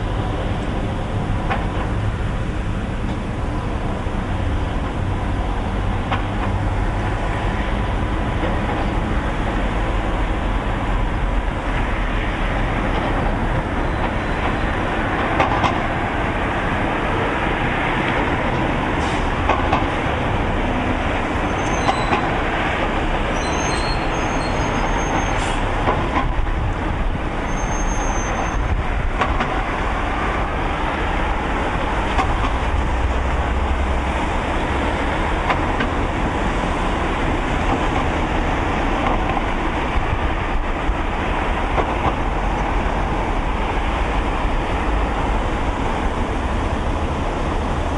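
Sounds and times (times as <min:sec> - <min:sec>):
road traffic passing: 0:00.0 - 0:47.9
faint short high squeaks: 0:21.5 - 0:22.2, 0:23.4 - 0:25.6, 0:27.5 - 0:28.7.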